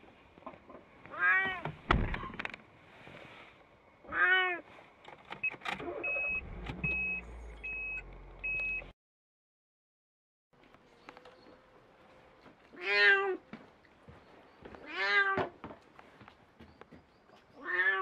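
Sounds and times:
cat meowing loudly: 1.1 - 1.7, 4.0 - 4.6, 12.8 - 13.4, 14.8 - 15.5, 17.6 - 18.0.

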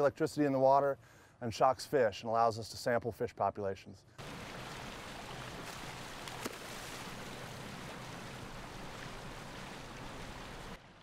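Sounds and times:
boat engine hum: 4.2 - 10.9
water rushing and splashing: 4.2 - 11.0.

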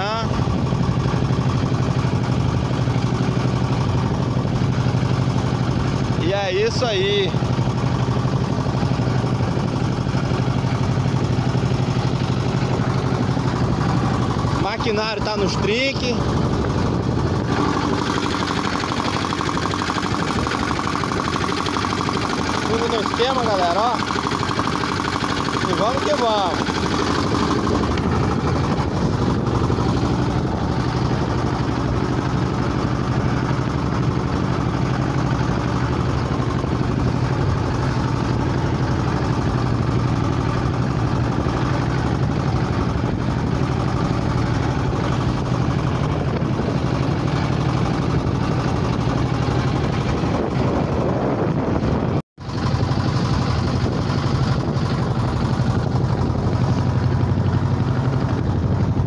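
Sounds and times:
boat engine droning: 0.0 - 59.0
wind: 0.0 - 59.0
water rushing: 3.3 - 50.3.

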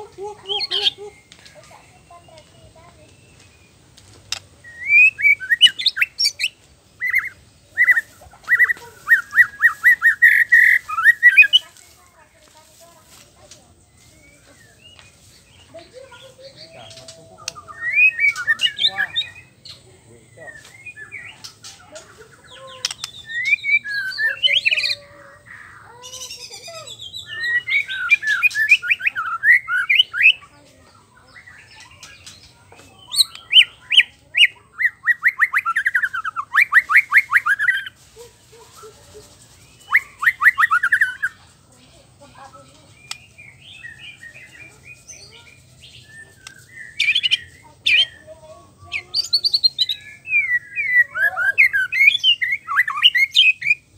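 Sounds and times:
bird singing whistled phrases: 4.6 - 11.7, 13.9 - 19.6, 22.4 - 30.4, 33.0 - 38.0, 39.6 - 41.4, 42.9 - 48.3, 48.9 - 53.9.

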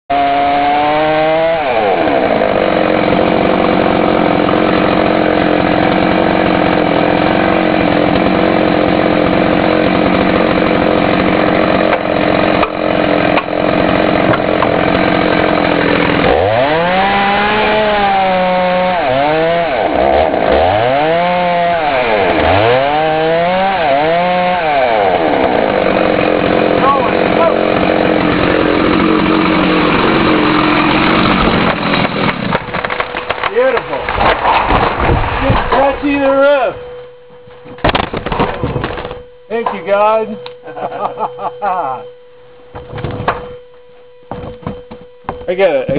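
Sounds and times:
chainsaw cutting wood: 0.1 - 36.6.

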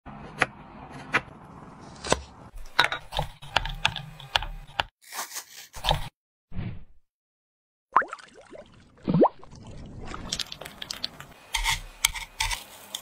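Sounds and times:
spatula scraping glass bowl: 10.8 - 13.0
knife shaving chocolate on wooden board: 11.5 - 13.0.

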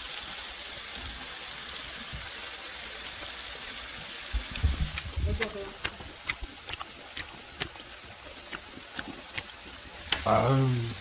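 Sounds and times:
steady hiss: 0.0 - 11.0
wet chewing mouth clicks: 4.4 - 9.7.

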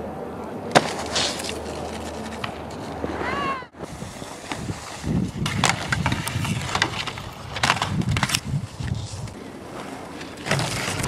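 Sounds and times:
skis scraping on snow: 0.8 - 11.0.

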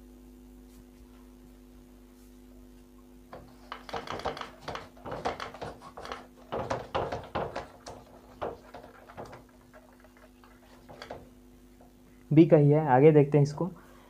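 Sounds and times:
duster rubbing whiteboard: 3.3 - 11.8.

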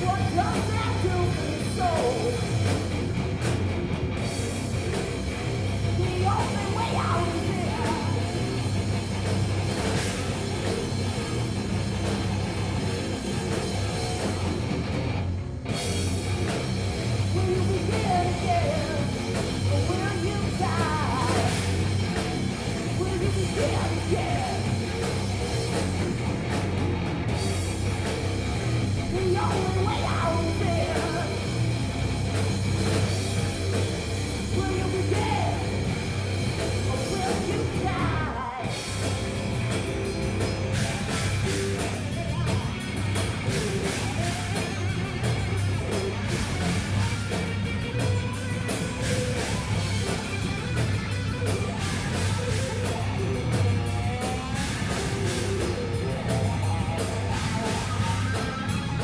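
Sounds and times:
hard rock band playing: 0.0 - 59.0
person singing: 22.9 - 24.8, 29.0 - 31.4, 36.9 - 38.8.

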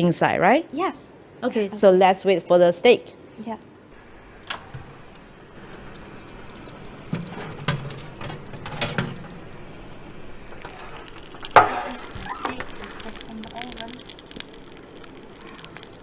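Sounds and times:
metal clatter: 5.7 - 9.4
oven tray metallic clinks: 5.7 - 9.4.

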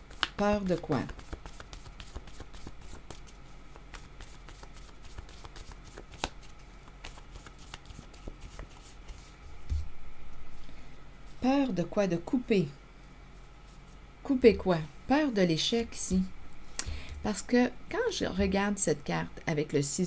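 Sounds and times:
cards being shuffled: 0.0 - 9.9.

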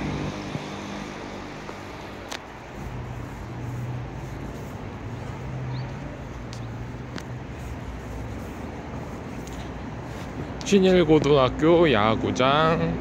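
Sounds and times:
low mechanical hum: 0.0 - 4.6
city noise: 0.0 - 13.0.

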